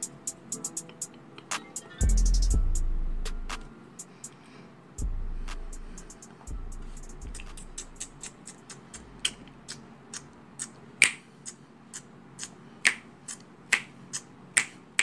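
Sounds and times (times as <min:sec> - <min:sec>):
fingers snapping: 0:07.4 - 0:11.6, 0:12.4 - 0:14.8.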